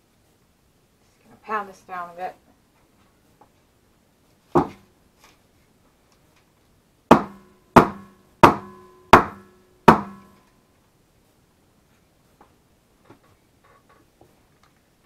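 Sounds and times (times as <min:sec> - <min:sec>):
soap mold banging down: 0:07.1 - 0:10.4.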